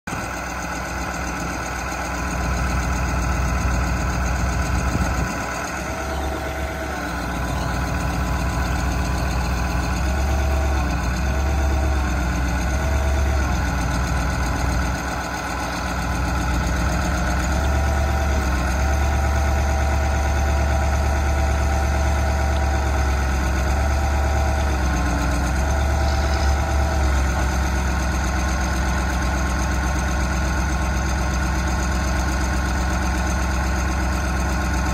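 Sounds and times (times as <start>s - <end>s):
truck engine idling: 0.1s - 34.9s
hydraulic whine: 4.8s - 12.0s, 24.4s - 27.7s.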